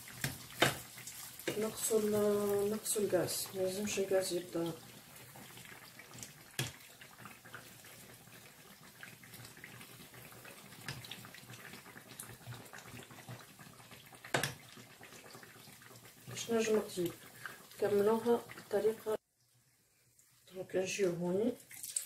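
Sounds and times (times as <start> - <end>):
dough sizzling in hot oil: 0.0 - 22.0.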